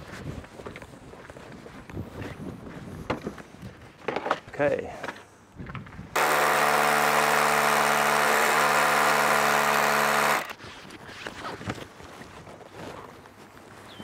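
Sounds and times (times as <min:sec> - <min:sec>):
cordless drill boring into stone: 0:06.2 - 0:10.6.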